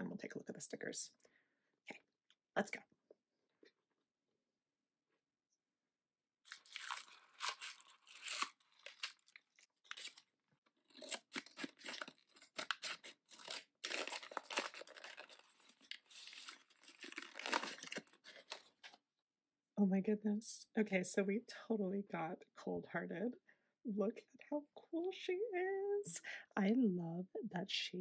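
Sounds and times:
foil bag crinkling: 6.5 - 10.3, 10.9 - 18.9.

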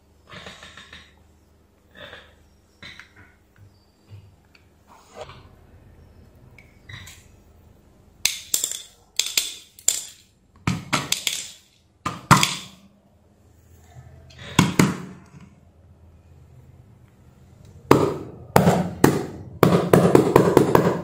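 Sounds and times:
metal parts clattering: 8.3 - 10.4, 11.0 - 11.8.

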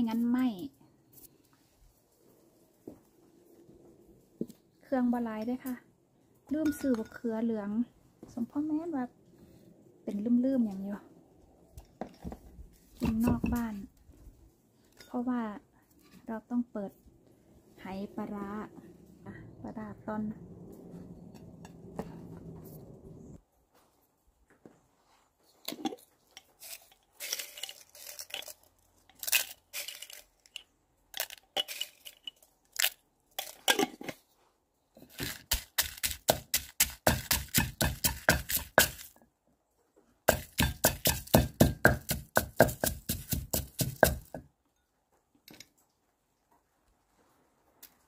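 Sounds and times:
pestle knocks and scrapes: 35.0 - 39.1, 40.3 - 44.5
pestle pounding in clay mortar: 35.1 - 39.1, 40.3 - 44.5.

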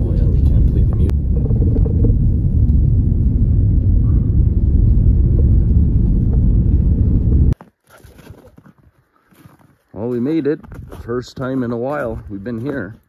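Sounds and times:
vehicle road rumble: 0.0 - 7.6.

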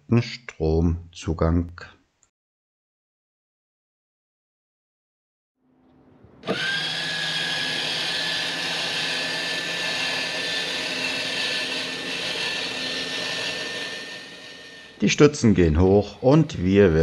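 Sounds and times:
jack motor whining: 6.4 - 15.0.

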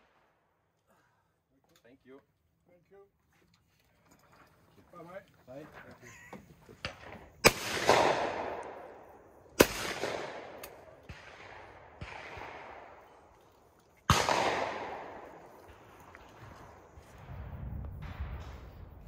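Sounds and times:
shotgun shots echoing: 6.8 - 13.3, 14.0 - 17.3.

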